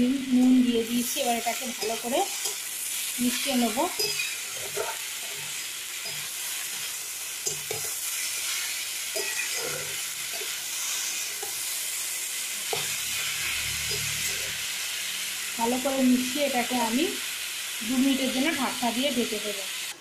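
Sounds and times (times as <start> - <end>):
vegetables sizzling in hot oil: 0.0 - 20.0
spatula scraping and knocking pan: 3.4 - 11.6.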